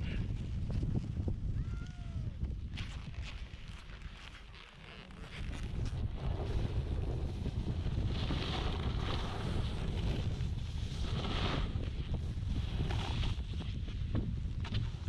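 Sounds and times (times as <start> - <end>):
wind buffeting microphone: 0.0 - 3.8, 5.4 - 15.0
snowboard sliding over snow: 3.4 - 15.0.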